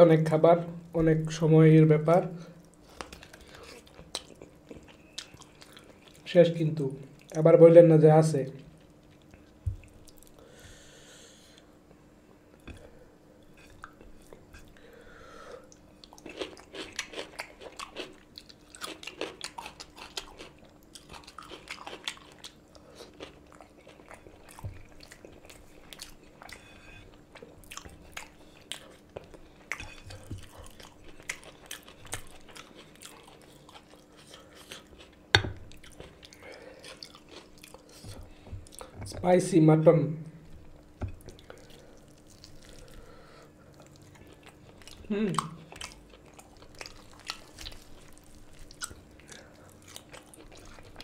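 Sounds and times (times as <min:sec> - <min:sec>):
wet chewing and smacking: 0:02.6 - 0:06.3, 0:08.8 - 0:10.4, 0:15.7 - 0:39.0, 0:40.5 - 0:51.0.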